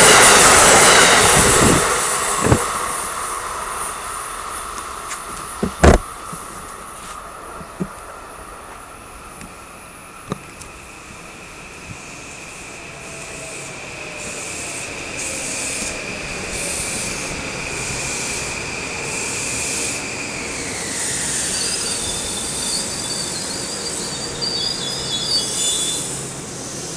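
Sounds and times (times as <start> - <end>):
high-pitched brake squeal: 0.0 - 3.9, 12.6 - 26.9
electric train whine: 0.0 - 26.9
train cars rumbling on rails: 0.0 - 26.9.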